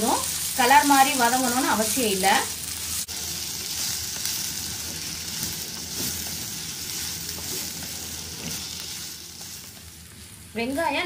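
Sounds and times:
onions sizzling in hot oil: 0:00.0 - 0:11.0
spatula stirring: 0:03.6 - 0:10.4.

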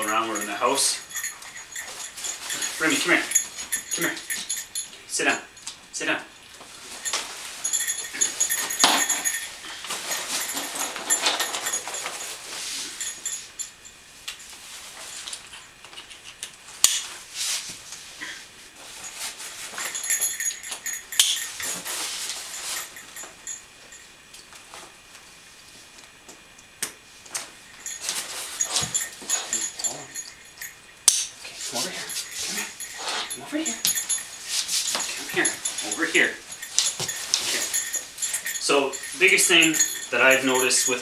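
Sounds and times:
nylon straps and fabric rustling: 0:00.0 - 0:04.9, 0:31.4 - 0:41.0
metal jingling: 0:00.0 - 0:14.0, 0:18.9 - 0:24.1, 0:27.6 - 0:41.0.

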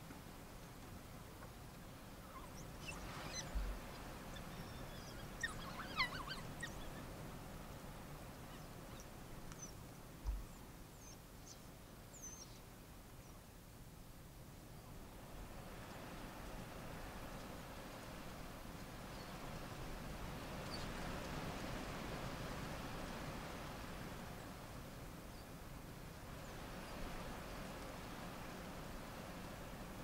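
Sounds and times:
wild dogs twittering squeaks: 0:02.3 - 0:07.0.

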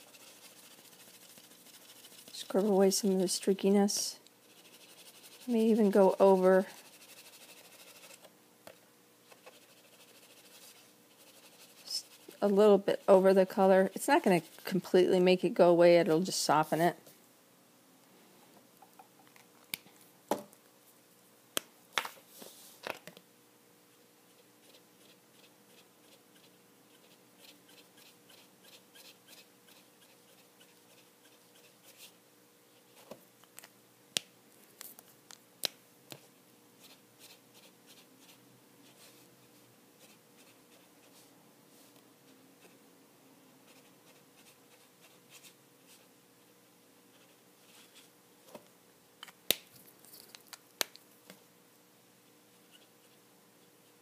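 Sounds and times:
marker scratching on paper: 0:00.0 - 0:03.2, 0:04.4 - 0:08.3, 0:09.3 - 0:14.8, 0:24.6 - 0:32.2, 0:36.8 - 0:39.1, 0:43.7 - 0:46.1.

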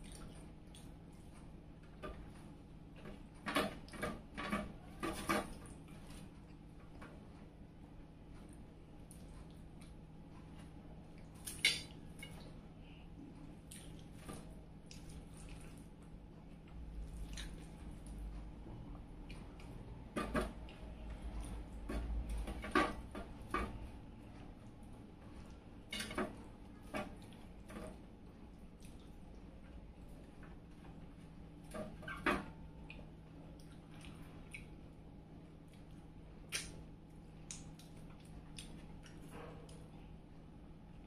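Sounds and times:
wet smacking eating sounds: 0:00.0 - 0:01.1, 0:13.5 - 0:18.2, 0:28.2 - 0:29.5, 0:32.8 - 0:35.0, 0:35.6 - 0:39.9.

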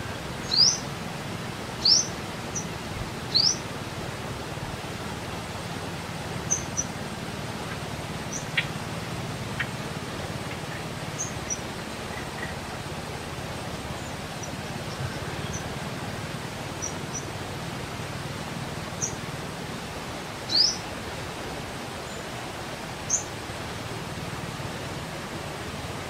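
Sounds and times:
steady outdoor hiss: 0:00.0 - 0:26.0
small birds chirping: 0:00.4 - 0:00.9, 0:01.8 - 0:02.7, 0:03.3 - 0:03.7, 0:06.4 - 0:07.0, 0:07.6 - 0:12.8, 0:16.8 - 0:17.3, 0:18.9 - 0:19.2, 0:20.5 - 0:20.8, 0:23.1 - 0:23.3.

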